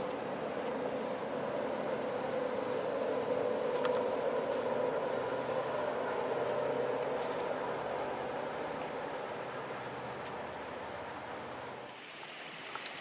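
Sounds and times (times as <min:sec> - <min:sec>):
distant traffic hum: 0:00.0 - 0:13.0
bird chirping: 0:02.6 - 0:09.4.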